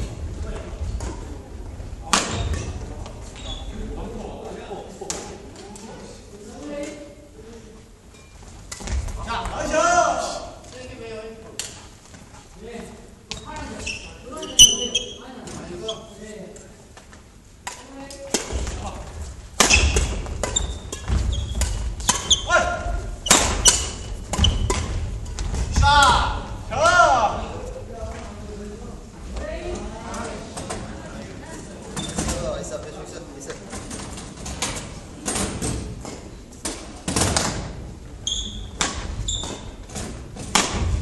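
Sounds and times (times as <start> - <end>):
sneakers squeaking: 0.6 - 4.0, 8.0 - 9.5, 13.3 - 16.3, 18.4 - 26.6, 31.8 - 32.5, 33.8 - 41.0
rackets hitting shuttlecocks: 19.5 - 26.2, 38.7 - 41.0
racket striking shuttlecock: 19.6 - 22.5.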